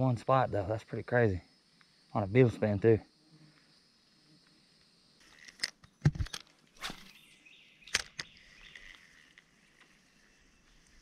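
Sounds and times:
insects buzzing: 0:00.0 - 0:11.0
reel clicks: 0:07.8 - 0:10.0.

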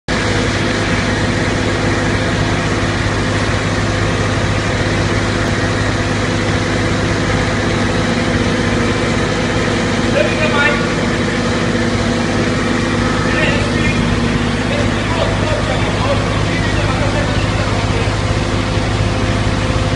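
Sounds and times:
truck engine and vacuum pump drone: 0:00.1 - 0:19.9.

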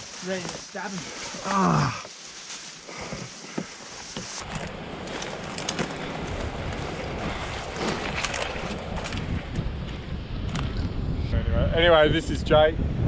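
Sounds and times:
scrub rustling against person: 0:00.0 - 0:09.2
twigs snapping: 0:00.0 - 0:09.4
wind buffeting microphone: 0:02.8 - 0:13.0.

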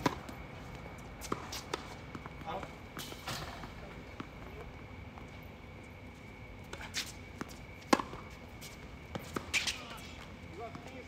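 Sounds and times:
tennis ball hit by racket: 0:07.9 - 0:08.3.

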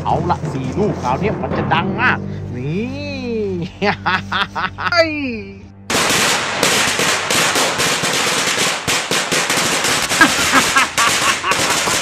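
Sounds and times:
firecrackers bangs and crackles: 0:05.9 - 0:12.0.

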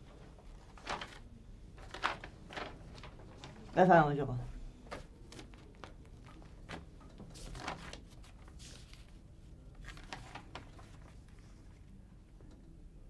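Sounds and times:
pages turning: 0:00.3 - 0:01.2, 0:01.8 - 0:03.8, 0:04.9 - 0:11.9.

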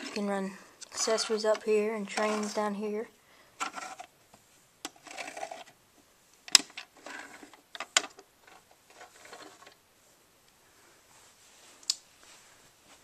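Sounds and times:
mechanical scraping of handles: 0:00.9 - 0:02.7.

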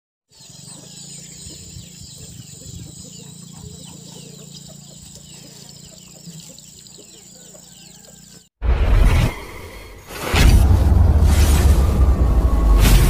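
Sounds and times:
birds chirping: 0:00.3 - 0:08.6.

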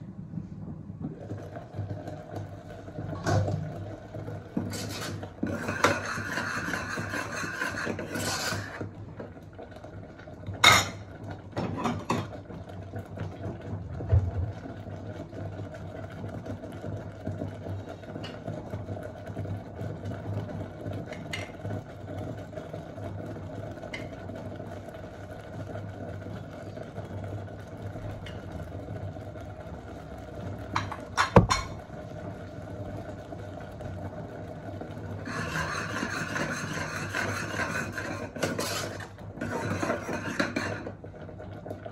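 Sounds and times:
metal spoon scraping a pot: 0:04.6 - 0:08.8, 0:35.2 - 0:40.9.

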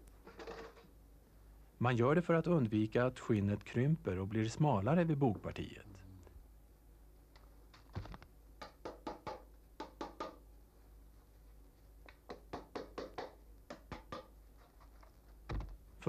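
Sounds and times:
small hammer tapping nails: 0:08.6 - 0:10.4.

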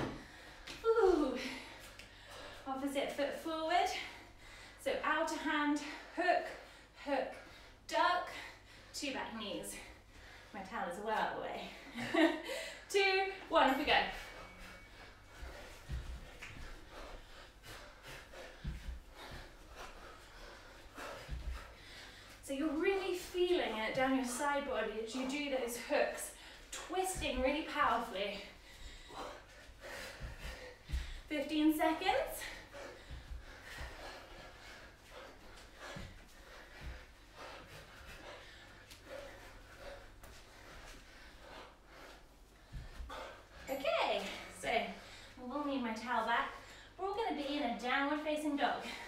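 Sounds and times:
bare feet thudding on floor: 0:15.4 - 0:16.9, 0:18.0 - 0:20.3, 0:29.9 - 0:34.5.

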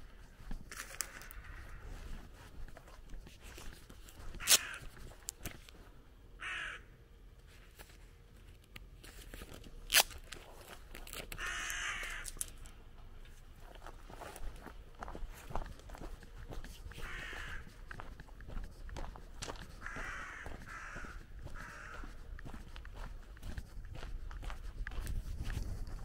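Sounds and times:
footsteps on gravel: 0:00.0 - 0:06.0, 0:09.1 - 0:26.0
bird harsh rasping calls: 0:04.4 - 0:04.9, 0:06.4 - 0:06.9, 0:11.4 - 0:12.3, 0:17.0 - 0:17.8, 0:19.8 - 0:22.0.

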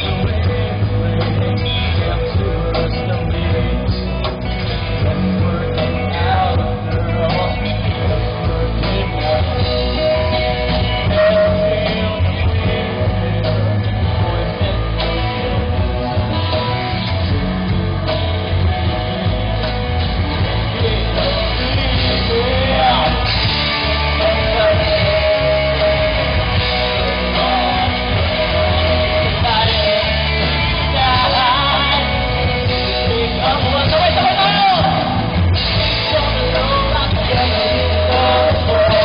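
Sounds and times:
live rock band playing: 0:00.0 - 0:39.0
man singing: 0:00.0 - 0:39.0.

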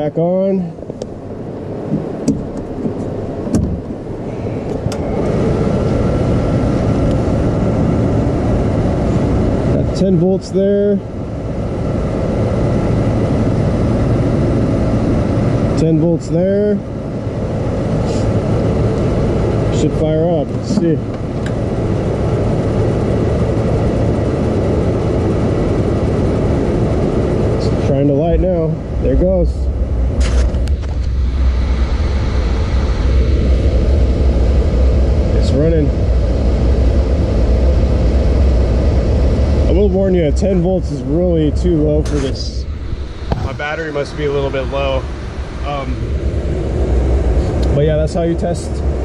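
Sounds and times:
furnace blower motor running: 0:00.0 - 0:49.0.

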